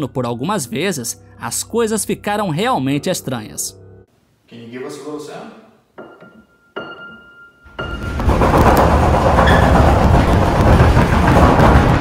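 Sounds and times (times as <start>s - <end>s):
high piano note: 6.0s - 8.2s
doors rattling in frames: 7.7s - 12.0s.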